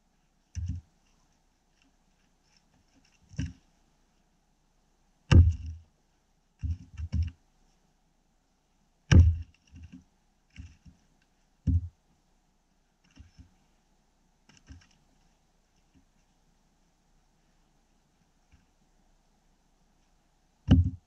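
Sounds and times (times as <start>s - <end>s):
axe splitting wood thunks: 5.3s - 5.8s, 9.1s - 9.5s, 20.7s - 21.0s
light wood knocks: 5.3s - 5.8s, 9.1s - 11.0s, 11.6s - 11.9s, 20.7s - 21.0s.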